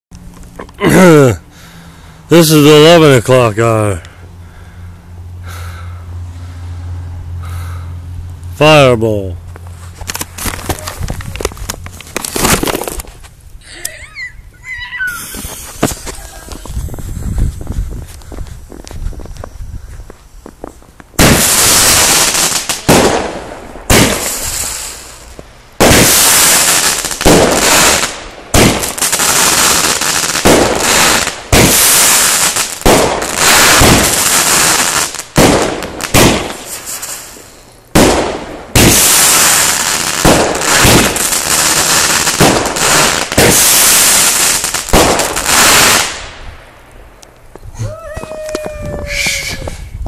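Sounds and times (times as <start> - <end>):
fireworks bangs and bursts: 12.1 - 13.1, 21.2 - 46.4.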